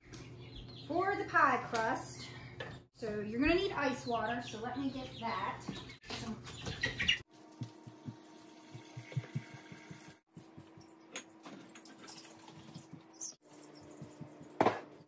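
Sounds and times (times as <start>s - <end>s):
running water: 7.3s - 10.2s.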